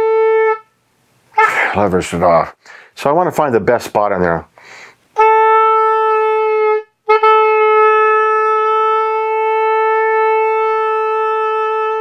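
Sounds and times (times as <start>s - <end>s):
oboe long held note: 0.0s - 0.7s, 5.2s - 12.0s.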